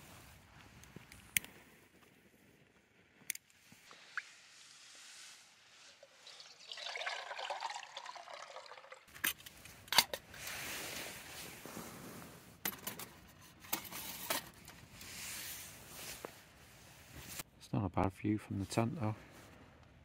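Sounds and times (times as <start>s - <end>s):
liquid pouring into container: 5.8s - 9.2s.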